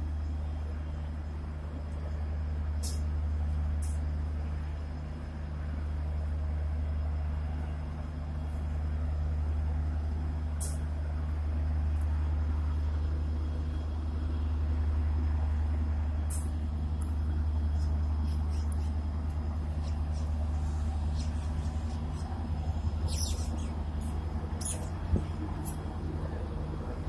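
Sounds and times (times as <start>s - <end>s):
diesel train engine rumbling: 0.0s - 27.0s
short sharp hisses: 2.8s - 3.1s.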